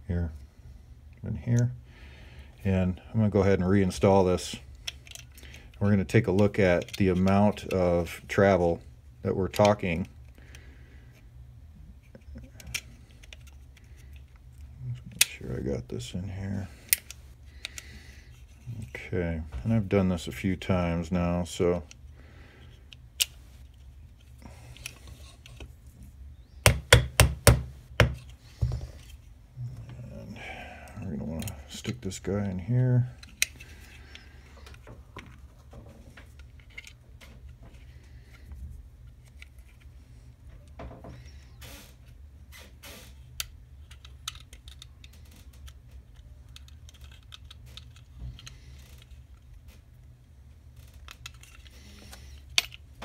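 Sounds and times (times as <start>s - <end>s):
plastic and metal parts clicking: 4.7s - 7.8s, 12.1s - 15.4s, 33.2s - 35.4s, 36.1s - 37.5s, 43.3s - 50.0s, 50.8s - 52.8s
hammer tapping a pin: 26.6s - 28.2s.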